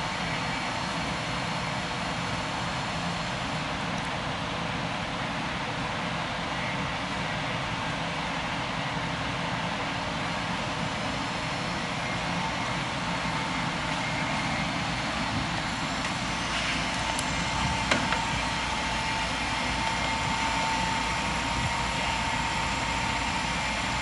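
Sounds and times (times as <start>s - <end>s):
machine whirring: 10.6s - 24.0s.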